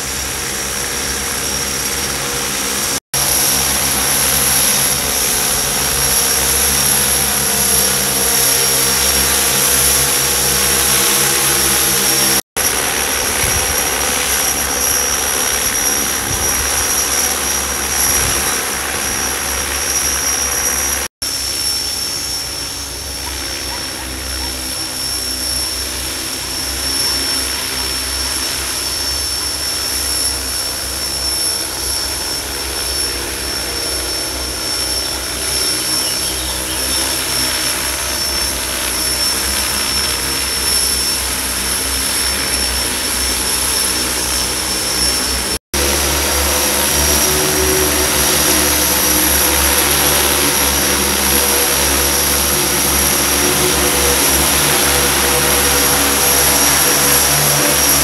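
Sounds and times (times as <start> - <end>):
drone rotor hum and whine: 0.0 - 58.0.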